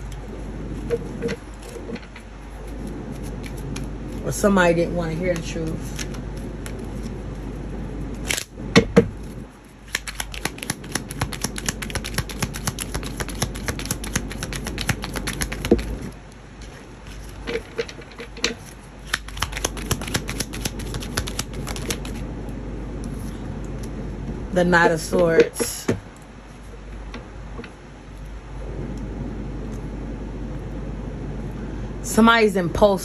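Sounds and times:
cards being shuffled: 1.5 - 4.2, 5.2 - 7.5, 9.2 - 22.2.

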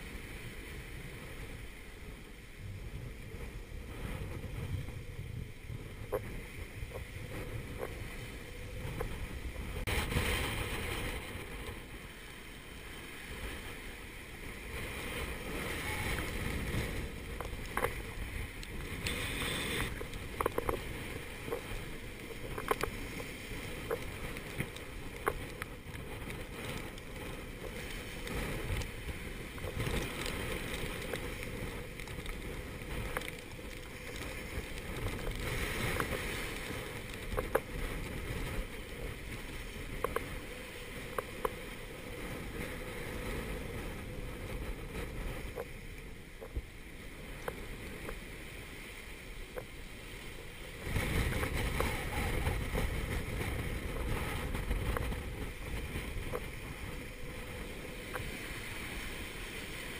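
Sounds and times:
waves rushing past hull: 0.0 - 59.9
wind buffeting microphone: 0.0 - 59.9.

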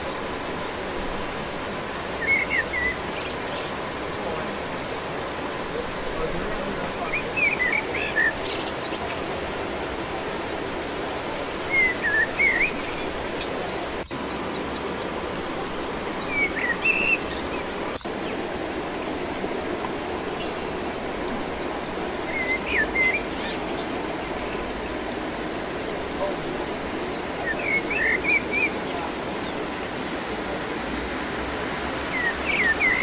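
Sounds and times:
running water: 0.0 - 33.0
bird chirping: 16.2 - 19.7, 21.6 - 25.0.

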